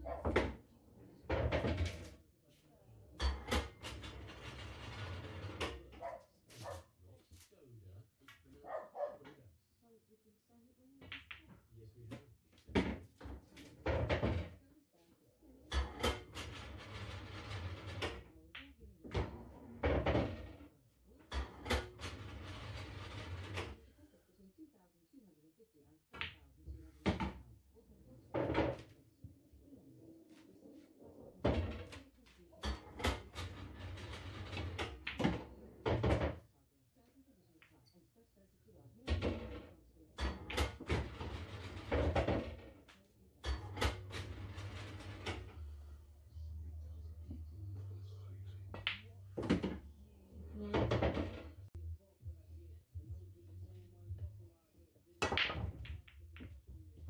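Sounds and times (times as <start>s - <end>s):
pool balls rolling rumble: 3.5s - 6.7s, 15.8s - 18.4s, 19.2s - 20.7s, 21.4s - 23.8s, 32.7s - 36.4s, 40.3s - 51.8s
pool balls clacking together: 15.8s - 18.3s, 32.6s - 36.4s, 40.2s - 42.7s, 43.5s - 45.6s, 47.7s - 51.8s, 55.2s - 57.0s.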